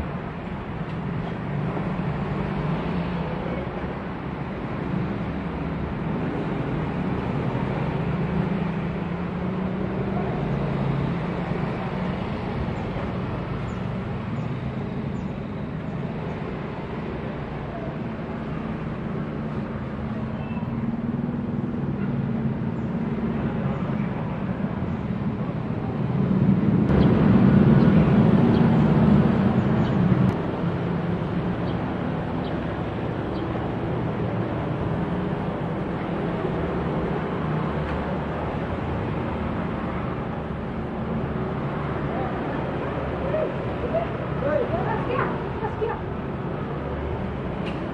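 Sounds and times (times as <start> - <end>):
outdoor background noise: 0.0 - 47.9
propeller aircraft drone: 0.0 - 47.9.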